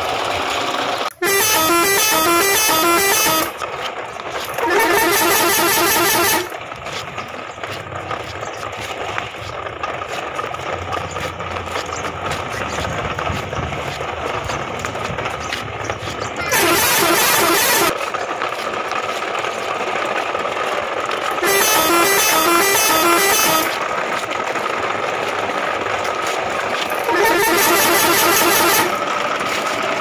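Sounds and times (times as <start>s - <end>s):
truck engine running: 0.0s - 30.0s
truck horn honking: 1.1s - 6.6s, 16.4s - 18.0s, 21.4s - 23.9s, 26.9s - 29.3s.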